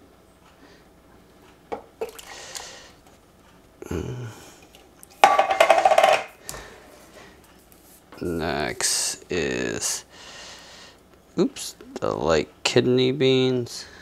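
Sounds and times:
metal can clinking: 5.2s - 6.3s.

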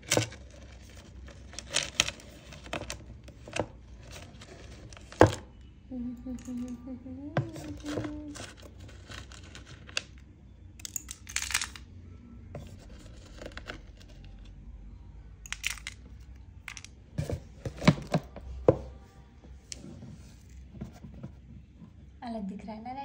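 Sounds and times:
hands rummaging in plastic box: 0.0s - 5.5s, 7.4s - 10.2s, 15.5s - 16.0s, 16.7s - 18.5s.

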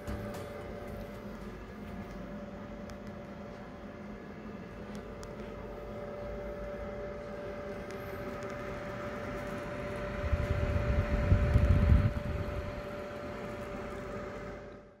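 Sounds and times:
fan whining: 0.0s - 15.0s
air buffeting microphone: 10.0s - 12.8s.

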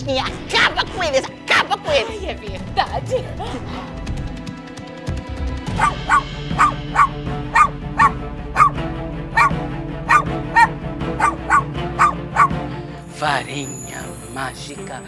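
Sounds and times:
background music: 0.0s - 15.0s
dog barking: 5.8s - 12.6s.

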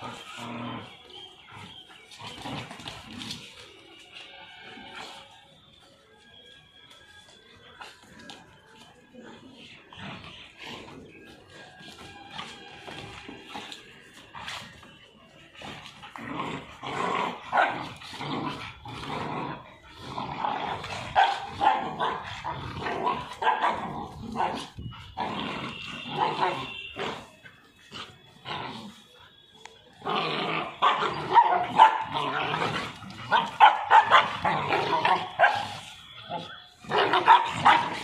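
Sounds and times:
young dogs growling and barking: 15.8s - 27.2s, 30.0s - 35.8s, 36.8s - 38.0s.

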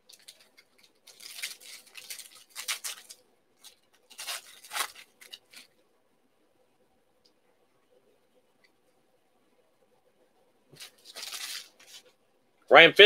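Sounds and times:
foil and plastic wrapping crinkling: 0.0s - 5.7s, 10.8s - 12.1s.

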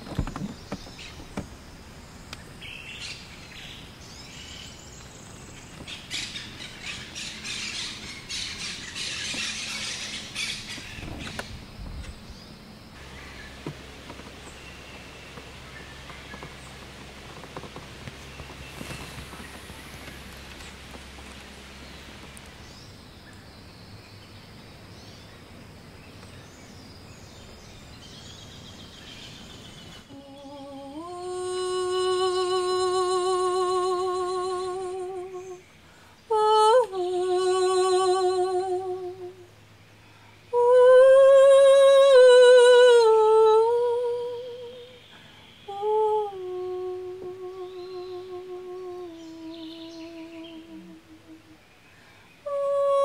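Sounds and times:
woman humming: 30.1s - 35.7s, 36.3s - 39.5s, 40.5s - 45.0s, 45.7s - 51.6s, 52.4s - 53.0s.

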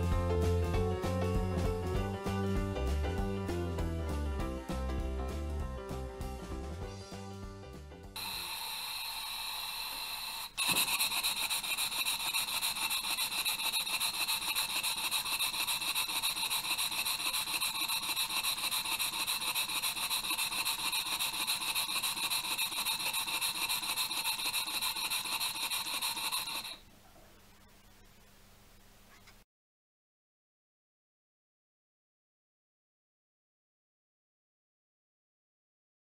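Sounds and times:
steam engine exhaust hissing: 8.2s - 26.8s.

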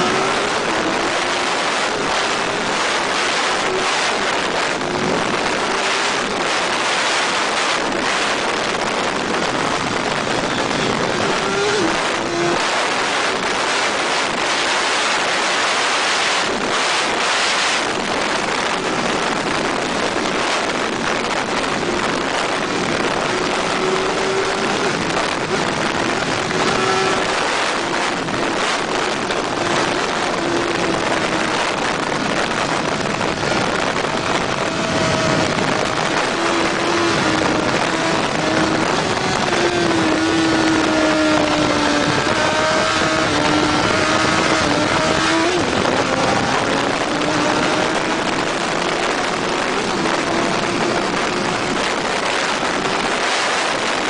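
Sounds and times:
wind rushing over microphone: 0.0s - 54.0s
faint motorcycle engine: 18.0s - 53.2s.

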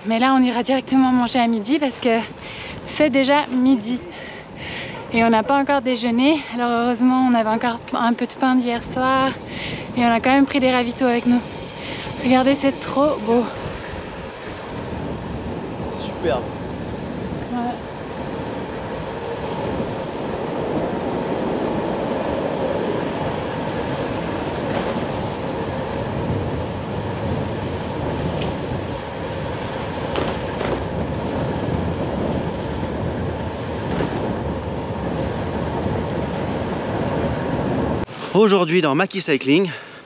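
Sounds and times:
bike tyres rolling on road: 6.9s - 38.0s.

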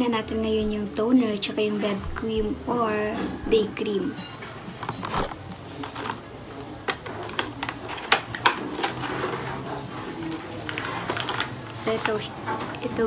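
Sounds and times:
plastic containers clicking: 4.6s - 13.0s.

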